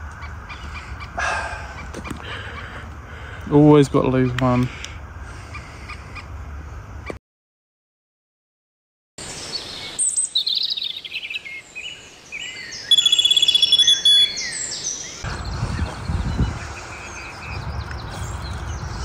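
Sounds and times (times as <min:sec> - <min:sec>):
low outdoor rumble: 0:00.0 - 0:07.1
songbirds chirping: 0:00.0 - 0:07.2, 0:09.2 - 0:19.0
bird trill: 0:09.4 - 0:19.0.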